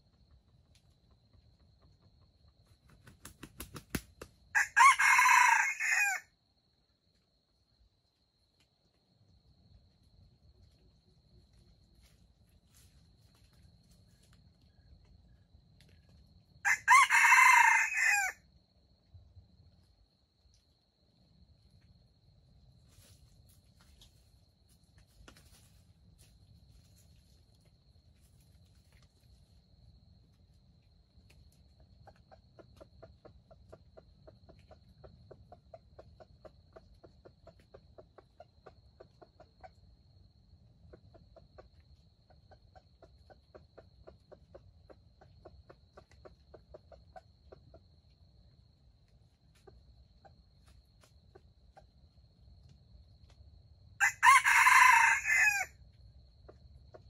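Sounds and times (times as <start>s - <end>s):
rooster crowing: 4.6s - 6.3s, 16.6s - 18.4s, 54.0s - 55.8s.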